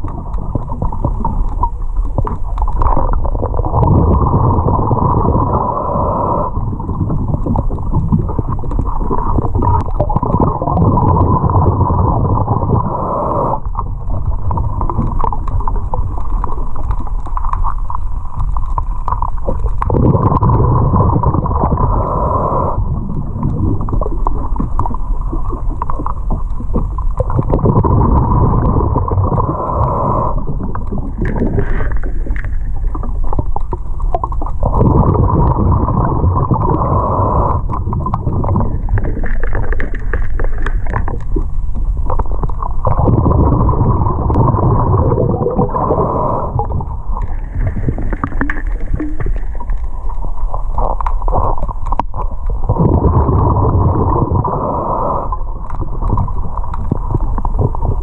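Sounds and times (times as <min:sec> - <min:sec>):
bubbling: 0:00.0 - 0:58.0
low rumble: 0:00.0 - 0:58.0
diver breathing underwater: 0:03.3 - 0:07.6, 0:08.2 - 0:14.0, 0:19.4 - 0:23.9, 0:25.9 - 0:32.8, 0:34.6 - 0:41.0, 0:42.8 - 0:56.3.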